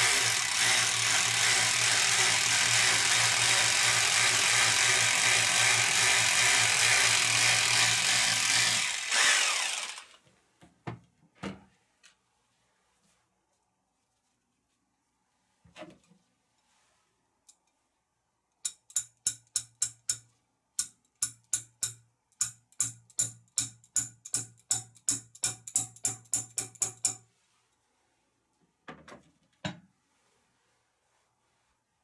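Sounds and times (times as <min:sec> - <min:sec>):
sharp metallic taps: 0:20.8 - 0:27.2.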